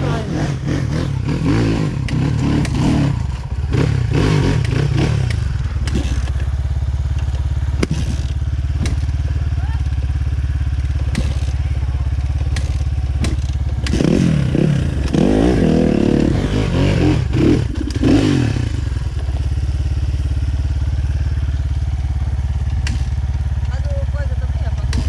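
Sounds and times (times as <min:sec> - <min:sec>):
engine revving hard: 0:00.0 - 0:06.3, 0:12.6 - 0:18.9
dirt bike engines running: 0:00.0 - 0:25.0
sharp knocks and clatters: 0:07.1 - 0:09.2, 0:10.8 - 0:14.2, 0:22.2 - 0:23.8.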